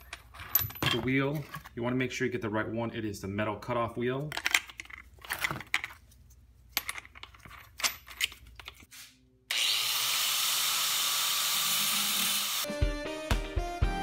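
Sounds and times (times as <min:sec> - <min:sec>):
angle grinder cutting metal: 0:09.5 - 0:12.7.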